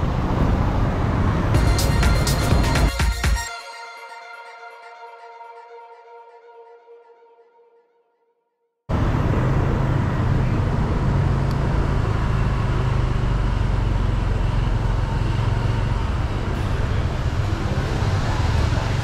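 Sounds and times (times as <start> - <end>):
car engine and tyre rumble: 0.0 - 1.6, 8.9 - 19.0
street traffic: 0.0 - 3.4, 8.9 - 19.0.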